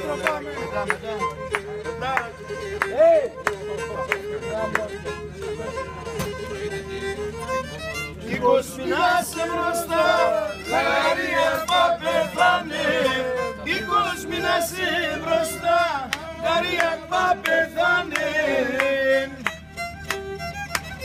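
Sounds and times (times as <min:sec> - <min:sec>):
bowed fiddle playing: 0:00.0 - 0:21.0
group of voices singing: 0:08.3 - 0:19.5.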